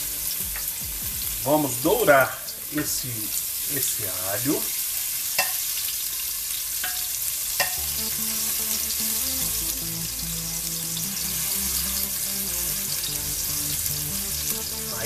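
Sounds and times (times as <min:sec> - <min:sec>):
garlic sizzling in hot oil: 0:00.0 - 0:15.0
spatula stirring in pan: 0:04.8 - 0:08.8
spatula tapping on pan: 0:05.4 - 0:05.6, 0:06.8 - 0:07.8.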